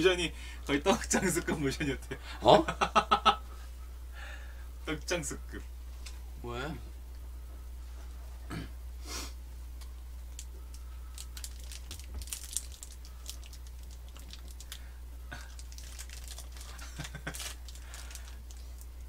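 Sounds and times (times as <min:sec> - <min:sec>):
steady low hum: 0:00.0 - 0:19.0
plastic wrapper crinkling: 0:10.3 - 0:19.0.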